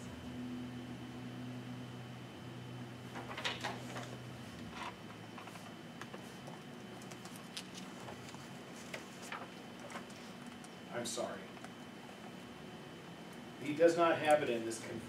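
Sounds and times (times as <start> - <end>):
faint room hum: 0.0 - 15.0
paper rustling and pages turning: 4.7 - 10.7.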